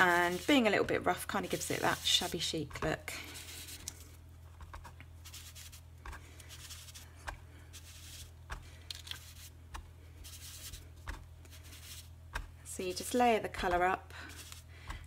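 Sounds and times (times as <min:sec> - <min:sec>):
sponge rubbing on cardstock: 0:00.0 - 0:00.7, 0:01.3 - 0:02.5, 0:05.2 - 0:05.8, 0:06.5 - 0:08.4, 0:09.2 - 0:09.5, 0:10.2 - 0:10.9, 0:11.5 - 0:12.1
low electrical hum: 0:00.0 - 0:15.0.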